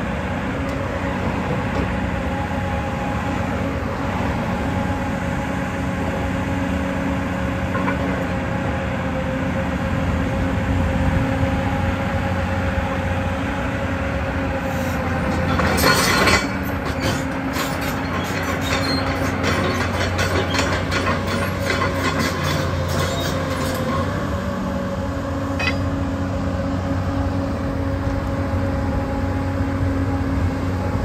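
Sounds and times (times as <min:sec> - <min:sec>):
excavator diesel engine running: 0:00.0 - 0:31.0
harsh metallic clatter: 0:15.2 - 0:24.2.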